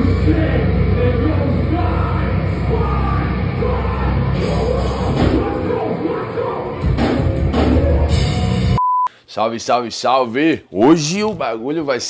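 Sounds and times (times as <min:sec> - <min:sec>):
loud hardcore band music: 0:00.0 - 0:08.8
vocals: 0:00.0 - 0:12.0.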